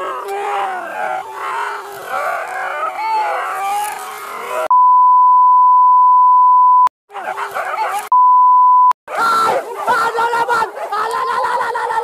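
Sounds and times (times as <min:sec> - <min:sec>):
people yelling excitedly: 0:00.0 - 0:04.7, 0:07.1 - 0:08.1, 0:09.1 - 0:12.0
censor bleep tone: 0:04.7 - 0:06.9, 0:08.1 - 0:09.0.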